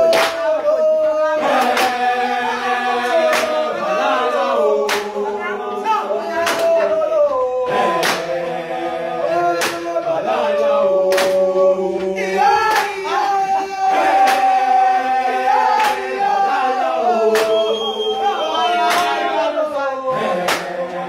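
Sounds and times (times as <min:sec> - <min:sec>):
sharp hand clap: 0:00.0 - 0:00.6, 0:01.5 - 0:02.1, 0:03.2 - 0:03.6, 0:04.8 - 0:05.2, 0:06.4 - 0:06.8, 0:07.9 - 0:08.4, 0:09.6 - 0:09.9, 0:11.0 - 0:11.5, 0:12.6 - 0:13.0, 0:14.2 - 0:14.6, 0:15.7 - 0:16.2, 0:17.3 - 0:17.7, 0:18.8 - 0:19.3, 0:20.4 - 0:20.8
boys singing in harmony: 0:00.0 - 0:21.0.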